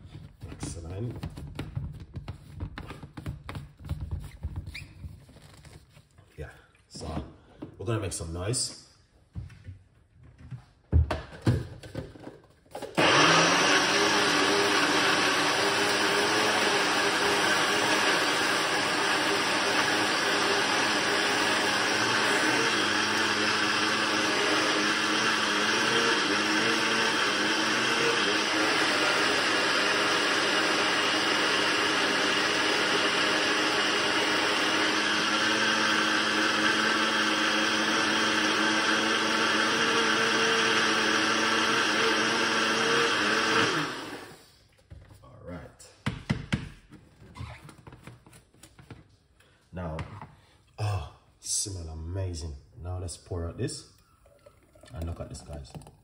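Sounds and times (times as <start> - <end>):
blender motor running: 12.8 - 44.5.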